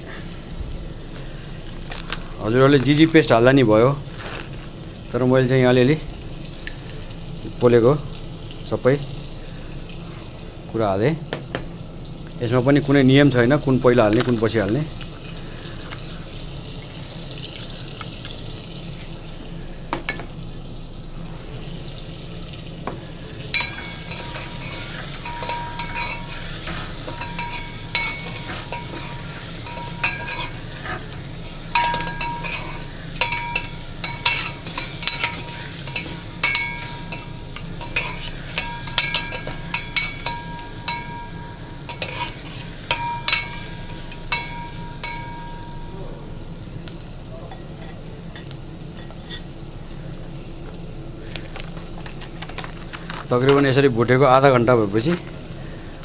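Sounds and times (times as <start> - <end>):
meat sizzling in a pot: 0.0 - 56.0
metal spoon clinking on a pot: 23.5 - 46.0.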